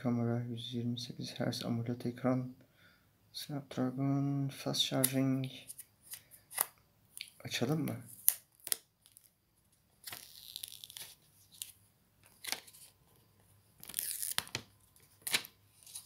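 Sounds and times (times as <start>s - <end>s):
plastic wrapping crinkling and tearing: 8.1s - 9.4s, 10.0s - 13.0s, 13.8s - 16.0s.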